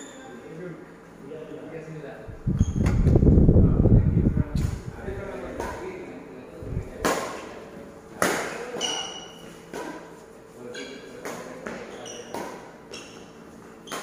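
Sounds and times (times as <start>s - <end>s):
shoes squeaking on court: 8.7s - 9.7s, 10.7s - 14.0s.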